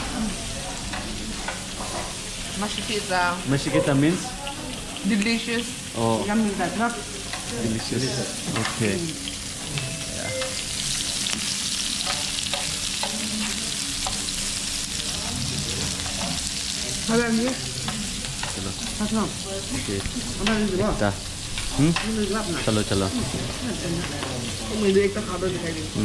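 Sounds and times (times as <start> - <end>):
meat sizzling on grill pan: 0.0 - 26.0
tongs clicking against pan: 12.0 - 14.3.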